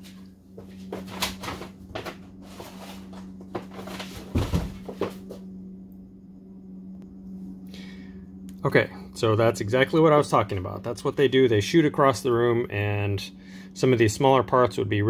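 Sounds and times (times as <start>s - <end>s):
steady low hum: 0.0s - 15.0s
heavy thump: 3.6s - 5.4s.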